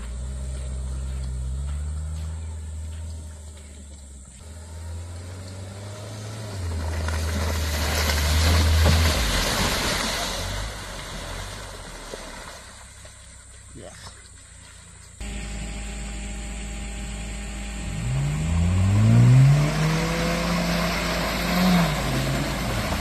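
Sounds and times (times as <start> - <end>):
car engine at low revs: 0.0 - 23.0
tyres on wet dirt: 0.0 - 23.0.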